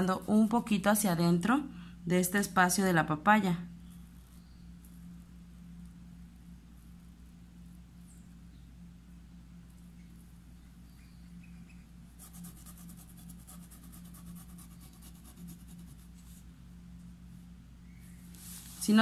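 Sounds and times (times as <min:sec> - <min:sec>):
steady low hum: 0:00.0 - 0:19.0
paintbrush scratching on fabric: 0:12.2 - 0:16.5.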